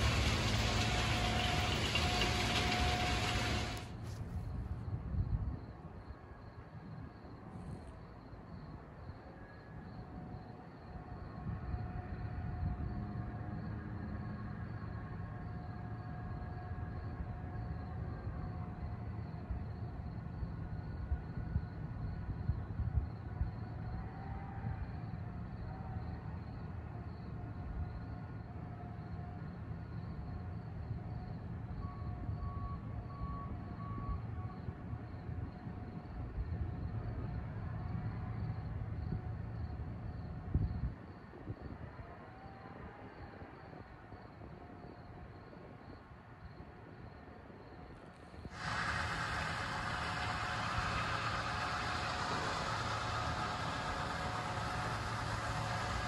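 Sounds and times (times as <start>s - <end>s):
diesel engine rumbling: 0.0s - 4.7s, 48.4s - 56.0s
rail vehicle rumbling: 0.0s - 56.0s.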